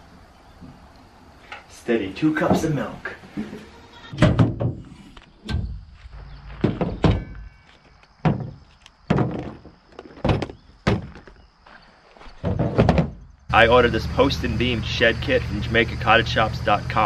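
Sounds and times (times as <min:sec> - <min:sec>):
tools knocking on tailgate: 0:04.2 - 0:04.8, 0:06.6 - 0:07.5, 0:08.2 - 0:09.6.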